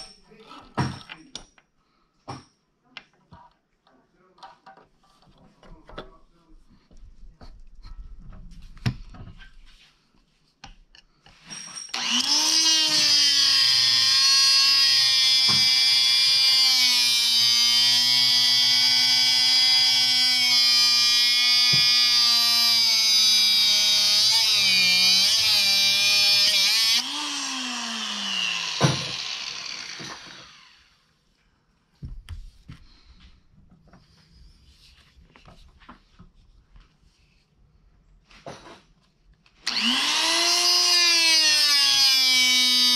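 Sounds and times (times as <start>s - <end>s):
angle grinder cutting steel: 11.9s - 30.9s, 39.6s - 42.9s
grinder winding down: 11.9s - 31.0s, 39.6s - 42.9s.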